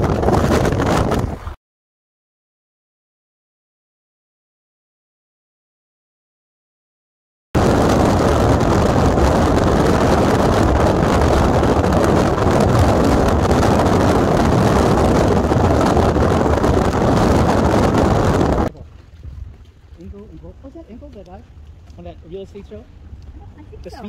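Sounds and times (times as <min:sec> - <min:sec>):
car road and wind noise: 0:00.0 - 0:01.6, 0:07.6 - 0:24.0.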